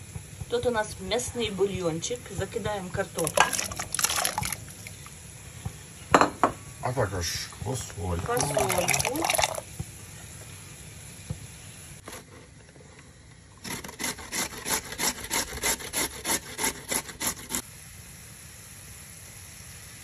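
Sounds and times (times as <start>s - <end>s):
grating on metal grater: 13.7s - 17.6s.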